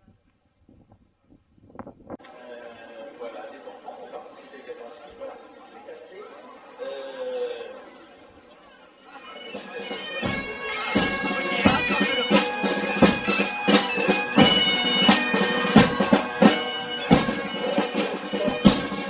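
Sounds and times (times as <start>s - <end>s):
bagpipes playing a tune: 9.1s - 19.0s
frame drum beating: 10.2s - 19.0s.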